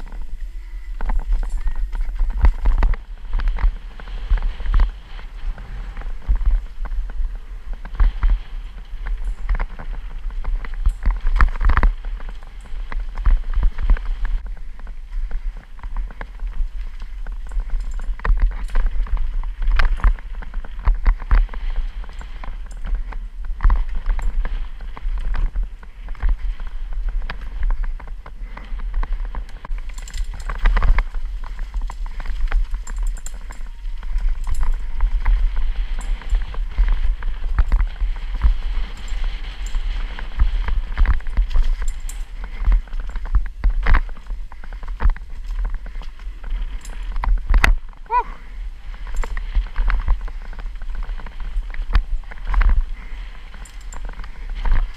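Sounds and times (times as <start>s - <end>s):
bike knocks and rattles: 0.0s - 48.2s
bike tyres on dirt: 0.0s - 54.9s
wind rumble on microphone: 0.0s - 54.9s.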